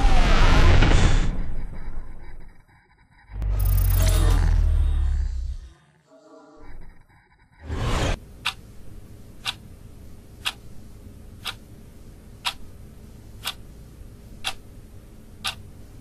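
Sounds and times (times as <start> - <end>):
faint steady hum: 1.6 - 16.0
sharp ticks: 10.4 - 10.6, 11.4 - 11.6.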